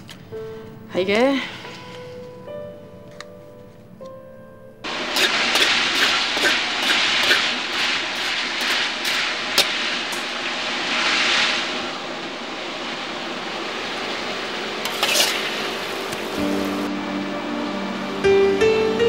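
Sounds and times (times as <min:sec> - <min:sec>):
food sizzling in a wok: 0:04.9 - 0:11.8
gas burner roaring: 0:04.9 - 0:18.8.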